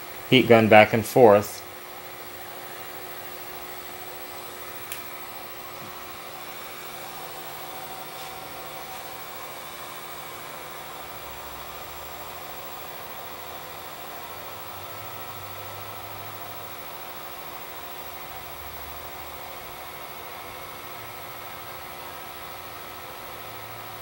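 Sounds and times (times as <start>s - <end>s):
heat gun blowing: 1.7s - 18.8s.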